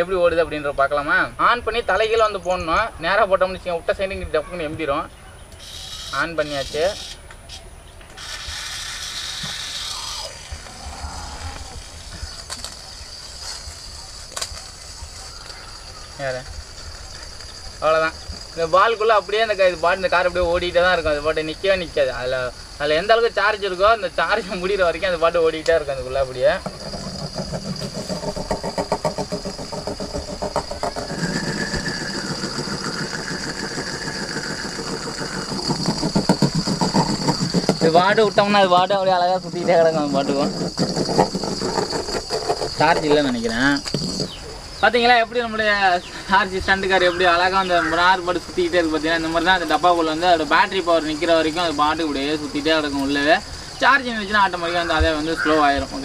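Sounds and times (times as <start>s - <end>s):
small electric motor whirring: 5.6s - 7.3s, 8.1s - 12.8s, 26.4s - 38.0s
wavering high whine: 23.0s - 42.1s.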